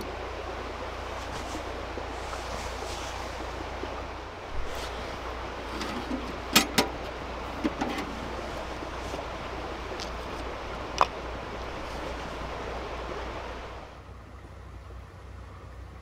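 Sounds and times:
steady rushing hiss: 0.0s - 14.0s.

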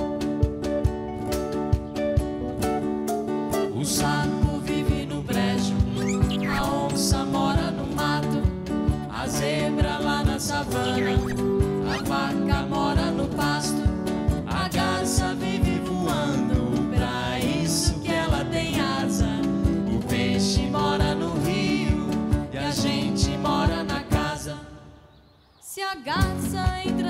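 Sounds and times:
guitar: 0.0s - 25.1s, 26.1s - 27.0s
man singing: 3.6s - 24.8s
woman singing: 3.9s - 13.9s, 14.5s - 19.5s, 20.1s - 24.8s, 25.6s - 27.0s
drums with steady beat: 4.4s - 24.2s.

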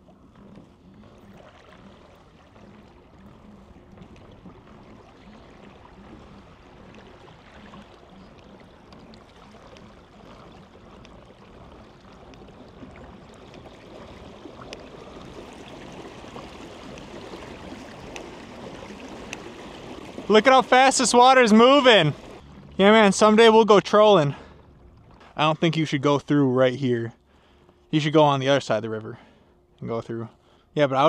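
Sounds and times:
water rushing and gurgling: 0.0s - 29.0s.

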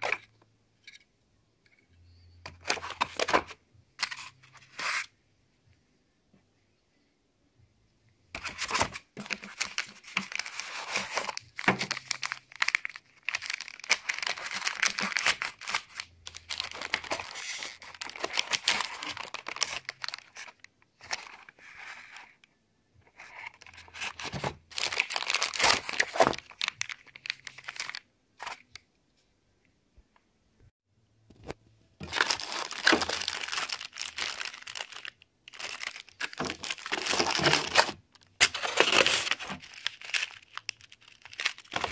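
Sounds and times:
plastic bags crinkling: 8.4s - 21.4s, 23.7s - 28.0s, 32.0s - 41.9s.

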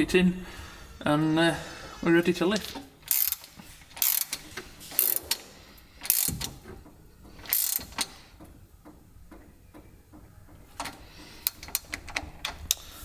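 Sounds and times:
socket ratchet clicking: 3.0s - 5.4s, 6.0s - 6.6s, 7.4s - 8.1s.

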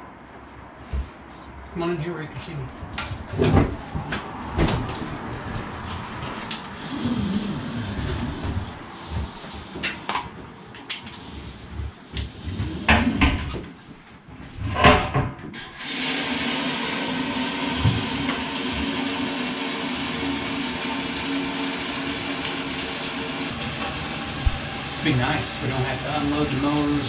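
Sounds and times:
fuel pump humming: 17.3s - 27.0s
fuel flowing through nozzle: 17.8s - 27.0s.

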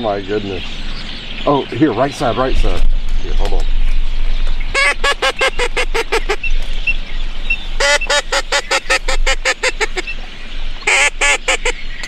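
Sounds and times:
duck call quacks: 4.7s - 6.4s, 7.8s - 10.1s, 10.9s - 11.8s.

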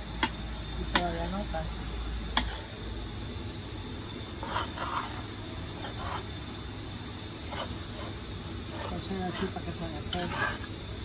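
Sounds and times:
metal spoon scraping pot: 4.4s - 6.3s, 7.4s - 10.7s.

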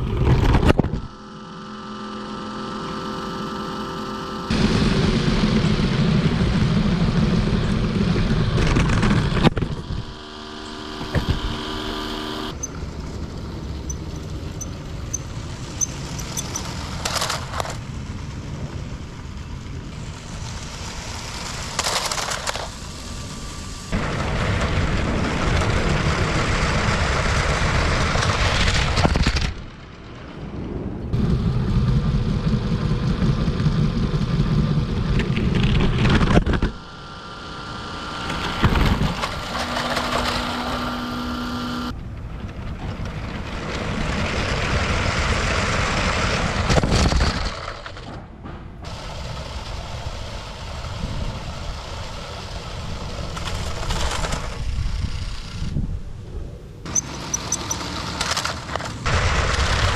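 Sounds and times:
steady humming tones: 0.0s - 59.9s
toy train rattling on track: 12.6s - 18.7s, 19.9s - 23.8s, 38.1s - 41.0s, 48.9s - 55.7s, 56.9s - 59.2s.

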